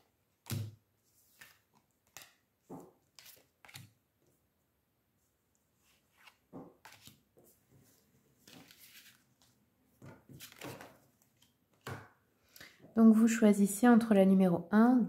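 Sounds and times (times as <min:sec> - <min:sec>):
cards rustling and tapping on cloth: 0:06.0 - 0:07.2, 0:08.4 - 0:12.0.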